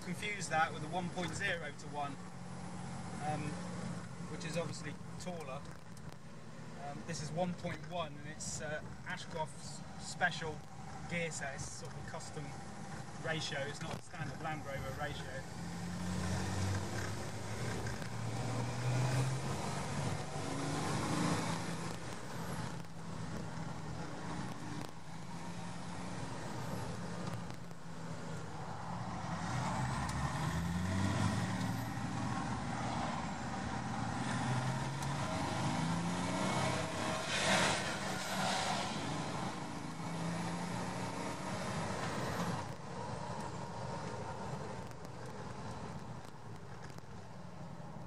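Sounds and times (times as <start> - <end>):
road noise: 0.0 - 48.0
diesel engine revving: 14.7 - 42.8
rush of noise: 35.2 - 39.9.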